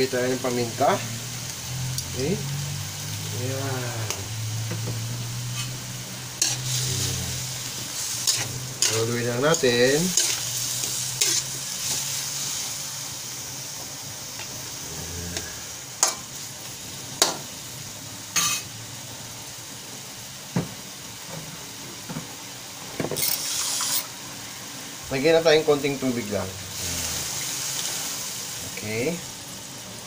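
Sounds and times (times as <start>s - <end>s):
chicken sizzling in hot oil: 0.0s - 30.0s
spatula stirring in wok: 4.6s - 12.7s.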